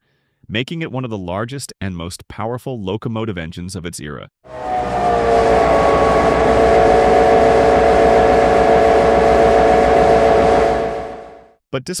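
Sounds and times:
diesel locomotive engine running: 4.5s - 11.6s.

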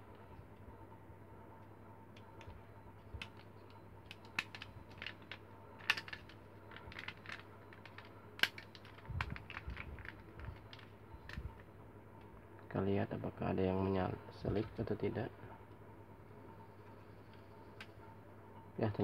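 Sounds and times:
toy gun parts clicking: 4.1s - 6.3s, 6.9s - 10.9s.

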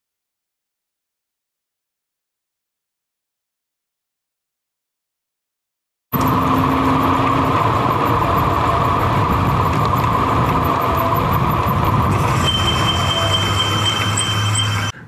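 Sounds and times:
scooter road noise: 6.2s - 15.0s
wind noise: 6.2s - 15.0s.

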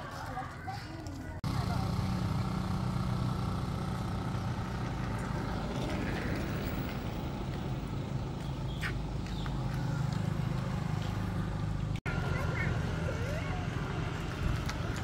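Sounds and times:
motorbike engine running: 1.4s - 15.0s.

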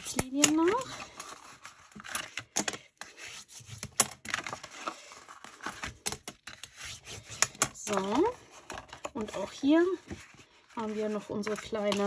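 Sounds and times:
paper rustling: 0.0s - 12.0s
bone folder scraping paper: 3.0s - 12.0s.

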